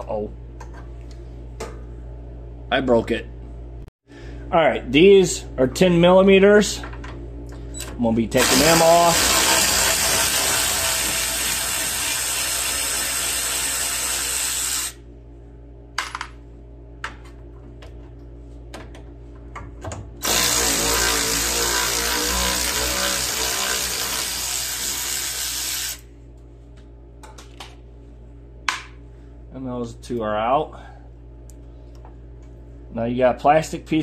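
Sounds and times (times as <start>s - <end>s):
electric ratchet running: 8.4s - 15.0s, 20.2s - 26.0s.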